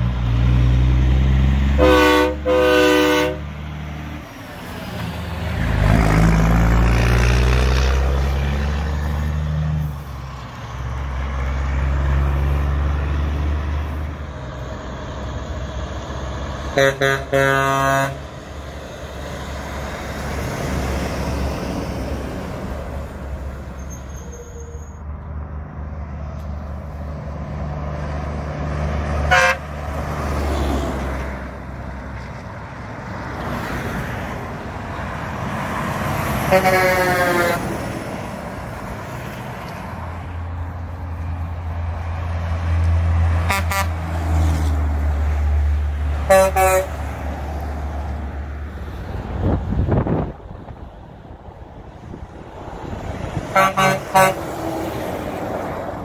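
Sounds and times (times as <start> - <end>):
trucks passing: 0.0 - 56.0
truck horn blasts: 1.8 - 3.5, 16.7 - 18.3, 29.2 - 29.8, 36.4 - 37.8, 43.4 - 44.0, 46.2 - 47.0, 53.5 - 54.5.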